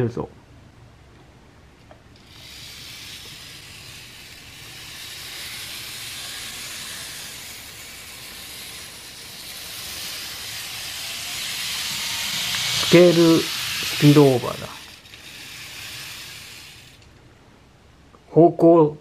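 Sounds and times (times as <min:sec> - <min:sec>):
model train motor hissing: 0:02.2 - 0:17.1.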